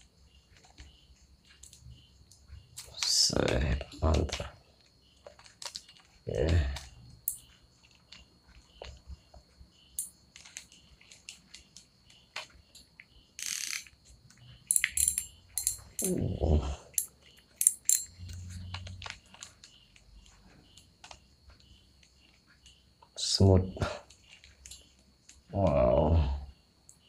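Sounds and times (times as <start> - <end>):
fishing reel clicking: 13.4 - 13.9, 14.7 - 16.1, 17.0 - 18.1.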